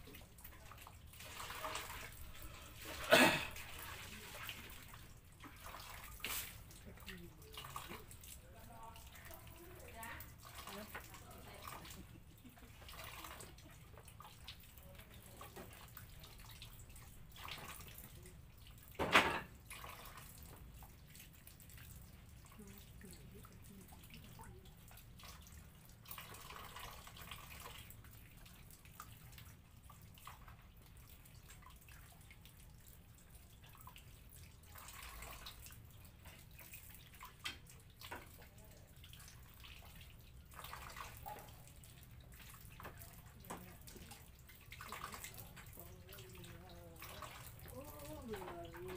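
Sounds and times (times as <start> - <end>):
tap water splashing into basin: 0.0 - 48.9.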